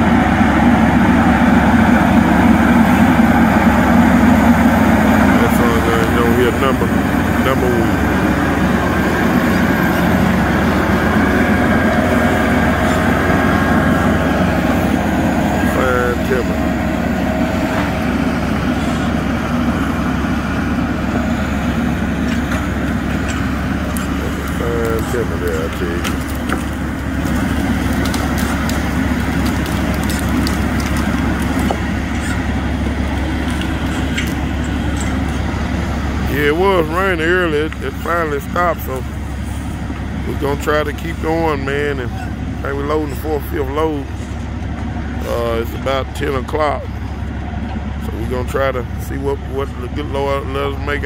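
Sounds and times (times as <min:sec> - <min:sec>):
diesel engine driving past: 0:00.0 - 0:51.0.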